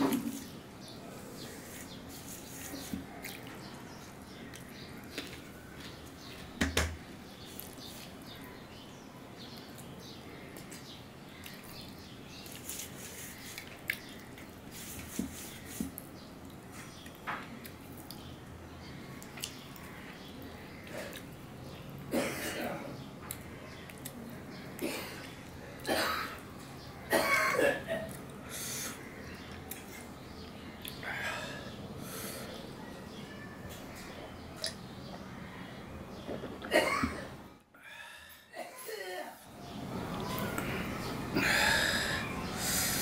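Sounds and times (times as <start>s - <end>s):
chewing soft food: 2.8s - 6.4s.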